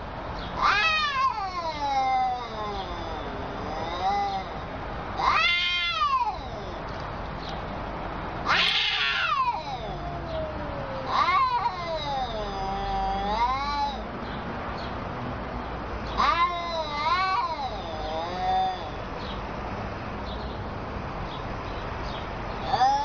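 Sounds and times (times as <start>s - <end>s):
cats yowling: 0.5s - 7.0s, 8.4s - 14.1s, 16.0s - 19.4s, 22.6s - 23.0s.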